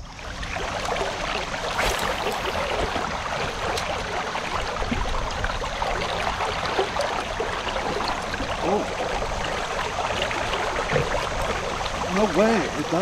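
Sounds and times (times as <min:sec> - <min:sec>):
river water rushing: 0:00.6 - 0:04.6.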